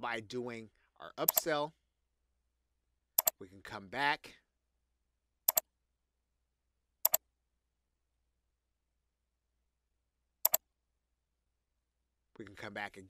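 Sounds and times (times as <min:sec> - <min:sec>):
computer mouse clicking: 0:01.2 - 0:01.5, 0:05.5 - 0:05.7, 0:07.0 - 0:07.2, 0:10.4 - 0:10.6.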